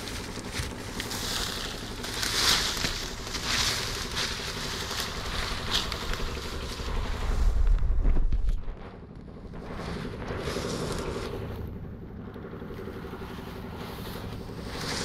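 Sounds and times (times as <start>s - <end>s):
dry grass rustling: 0.0s - 15.0s
low steady hum: 0.0s - 15.0s
wind buffeting microphone: 3.1s - 15.0s.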